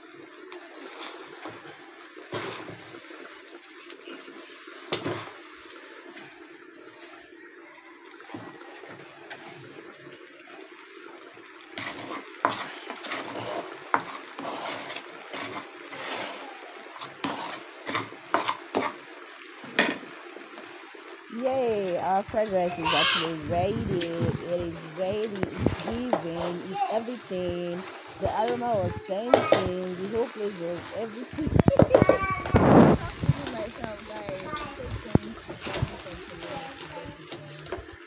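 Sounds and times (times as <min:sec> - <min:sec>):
steady background noise: 0:00.0 - 0:38.0
utensils clattering on metal pot: 0:11.8 - 0:19.0, 0:19.6 - 0:20.1, 0:22.4 - 0:32.6.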